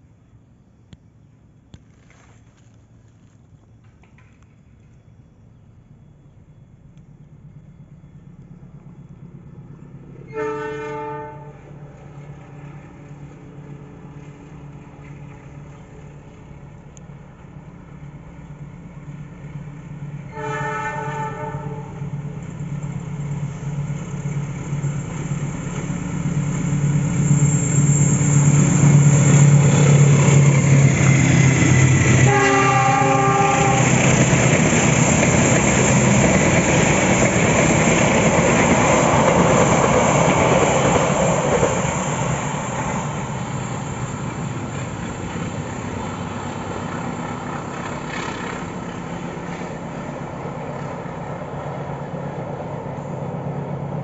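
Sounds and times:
train wheels on rails: 1.0s - 54.0s
train horn: 10.2s - 12.3s, 20.3s - 22.2s, 32.0s - 34.3s.

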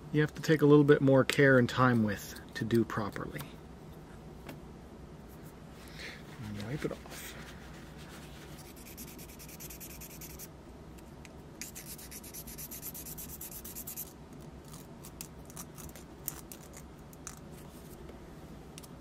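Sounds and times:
nail file rasping: 8.6s - 10.5s, 11.6s - 14.1s.

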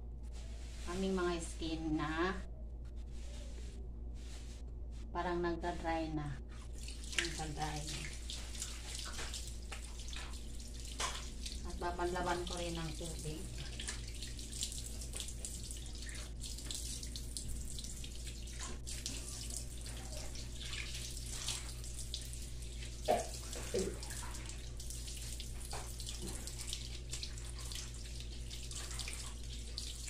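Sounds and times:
steady low hum: 0.0s - 30.0s
water splashing over a sink: 6.6s - 30.0s.

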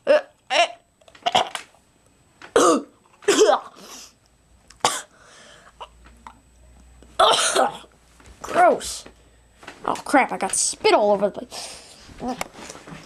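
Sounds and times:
person coughing and gagging: 0.1s - 1.6s, 2.5s - 3.8s, 4.8s - 5.1s, 7.2s - 7.9s.

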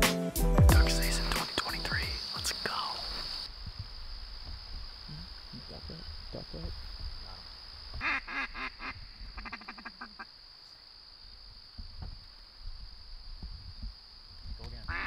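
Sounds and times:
ducks quacking: 8.0s - 10.3s.

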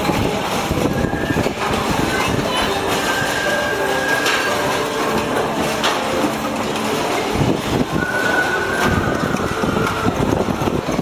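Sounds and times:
carousel mechanical din: 0.0s - 11.0s
high mechanical squeal: 0.8s - 5.2s, 7.5s - 11.0s.

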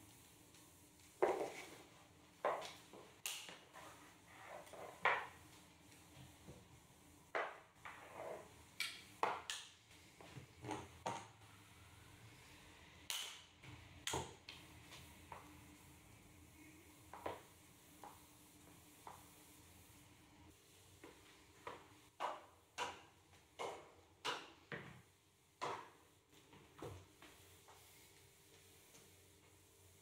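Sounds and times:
mop swishing on hard floor: 0.0s - 11.2s, 13.7s - 30.0s.

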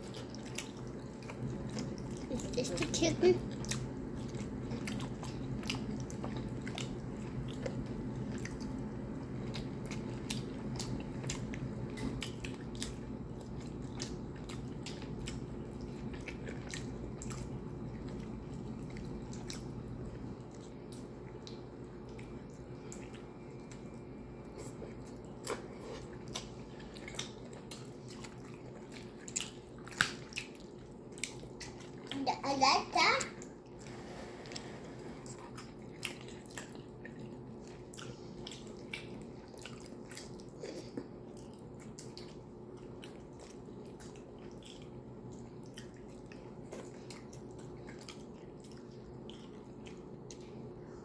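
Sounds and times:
chewing with wet clicks: 0.0s - 32.4s, 33.0s - 33.9s, 35.2s - 51.0s.

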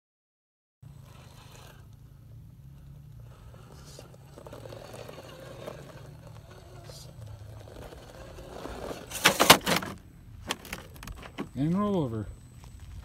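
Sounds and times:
toy crawler clattering on rock: 3.1s - 11.7s.

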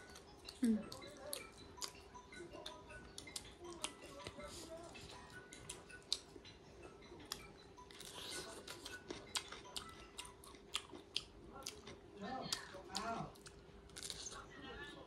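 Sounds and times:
chewing and mouth smacks: 7.2s - 14.4s.

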